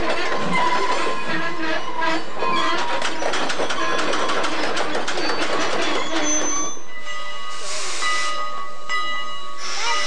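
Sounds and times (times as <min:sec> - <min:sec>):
train wheels clattering over rail joints: 0:00.0 - 0:06.8
steam locomotive hissing steam: 0:06.4 - 0:10.0.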